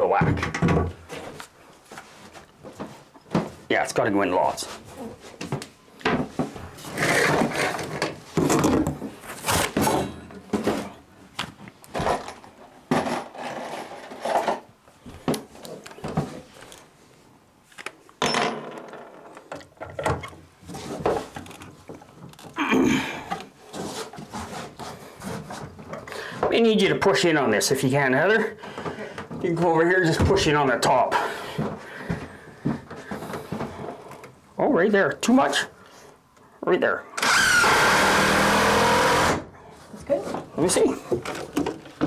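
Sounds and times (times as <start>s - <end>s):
wood scraping and rubbing: 6.3s - 11.0s, 12.0s - 14.7s, 23.3s - 26.6s.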